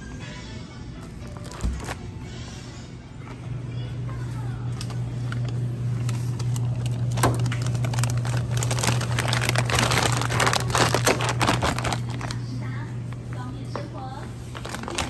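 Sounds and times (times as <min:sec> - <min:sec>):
steady low hum: 0:00.0 - 0:15.0
plastic bags crinkling: 0:01.2 - 0:02.1, 0:04.9 - 0:13.5, 0:14.3 - 0:15.0.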